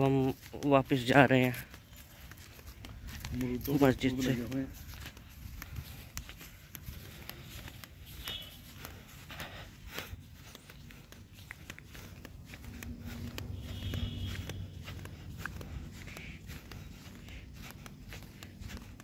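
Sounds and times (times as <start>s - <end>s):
footsteps on dirt and grass: 0.0s - 19.0s
wind rumbling on microphone: 2.4s - 8.3s.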